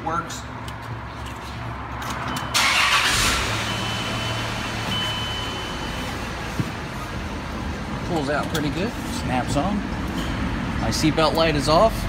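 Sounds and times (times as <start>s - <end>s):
car engine starting and idling: 2.0s - 8.6s.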